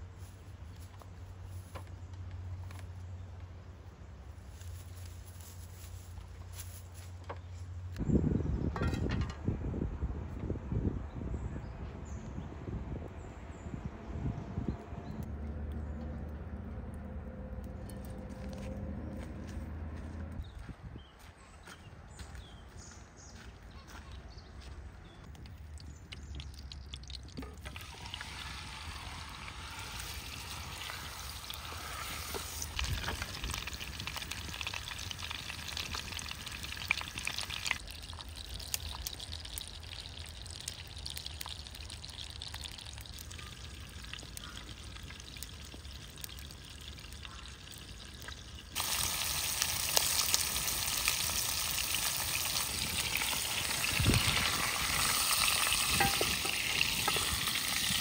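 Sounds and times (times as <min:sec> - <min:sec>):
food frying in hot oil: 0:25.9 - 0:58.0.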